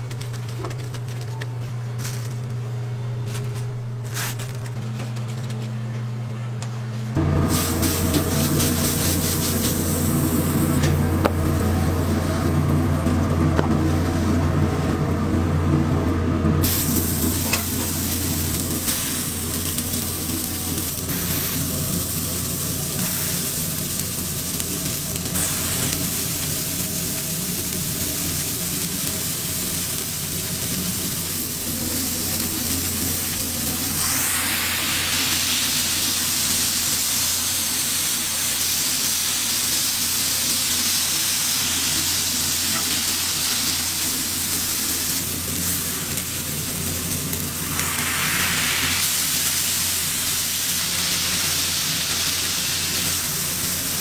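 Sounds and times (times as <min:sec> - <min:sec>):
low steady hum: 0:00.0 - 0:38.5
food sizzling on griddle: 0:07.4 - 0:12.6, 0:16.6 - 0:54.0.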